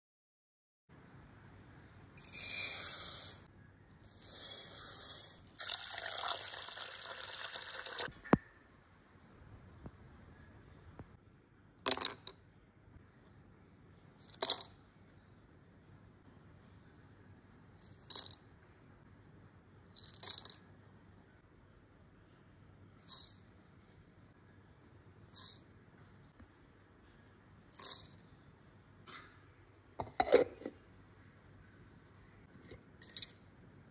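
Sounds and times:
water pouring onto rice: 5.5s - 8.1s.

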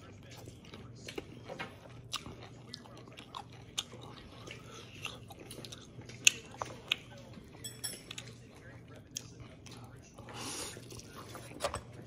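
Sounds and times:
person chewing and biting food: 0.0s - 7.2s.

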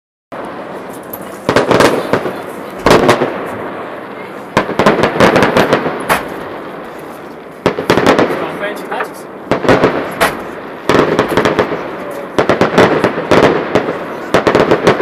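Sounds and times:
firework shells bursting: 0.4s - 3.7s, 4.5s - 15.0s
firework crackles: 0.4s - 15.0s
steady background noise: 0.4s - 15.0s.

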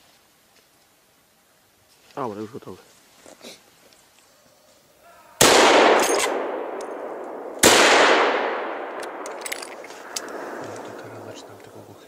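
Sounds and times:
rifle shots echoing: 5.4s - 11.4s.

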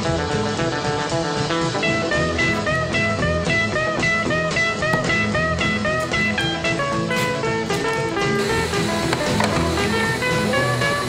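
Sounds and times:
drums with steady beat: 0.0s - 11.0s
guitar playing: 1.5s - 11.0s.

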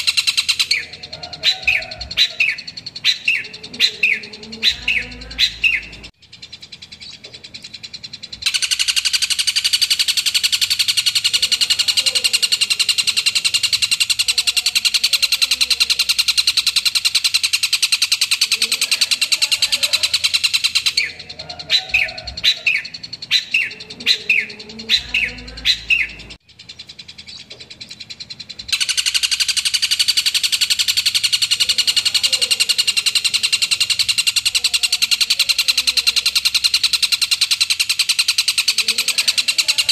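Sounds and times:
bird sharp chirps: 0.0s - 39.9s
shrike fast high-pitched chatter: 0.0s - 39.9s.

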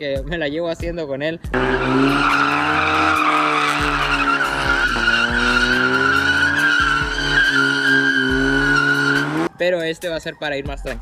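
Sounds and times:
tires squealing: 1.5s - 9.5s
truck engine at high revs: 1.6s - 9.5s.

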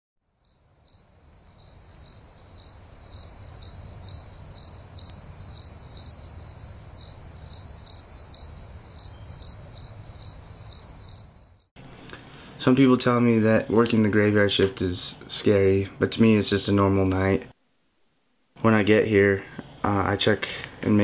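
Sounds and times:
cricket chirping: 0.2s - 11.8s.

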